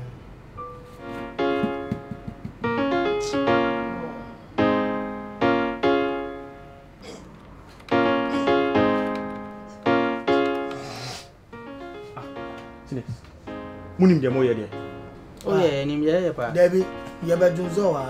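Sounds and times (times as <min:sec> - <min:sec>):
slow piano chords: 0:00.0 - 0:18.0.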